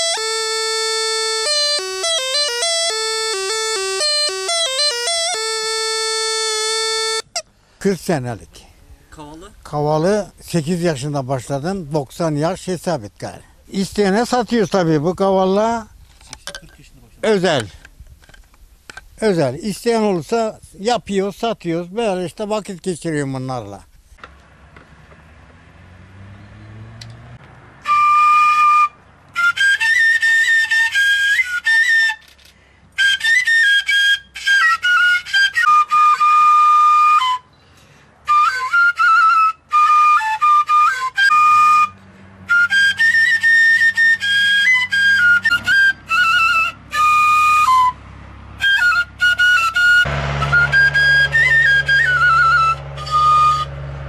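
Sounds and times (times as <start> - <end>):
reed pipe melody with trills: 0.0 - 8.1, 27.7 - 32.3, 32.9 - 54.0.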